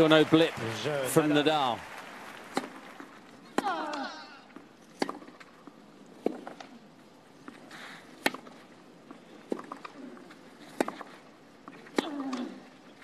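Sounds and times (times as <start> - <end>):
racket striking tennis ball: 2.5 - 2.8, 4.9 - 5.5, 8.2 - 8.5, 10.6 - 11.2.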